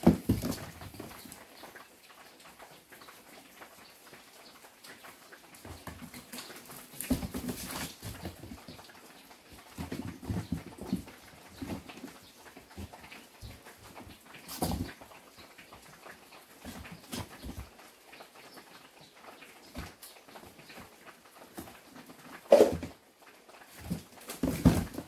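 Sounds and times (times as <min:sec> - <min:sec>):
kittens' paws scrabbling on cardboard: 0:00.0 - 0:01.5, 0:05.6 - 0:18.7, 0:19.7 - 0:23.0, 0:23.6 - 0:25.0.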